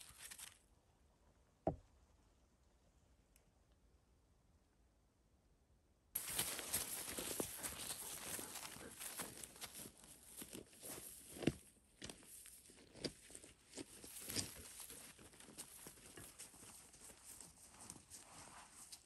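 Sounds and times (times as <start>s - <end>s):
footsteps rustling in dry grass: 6.2s - 19.0s.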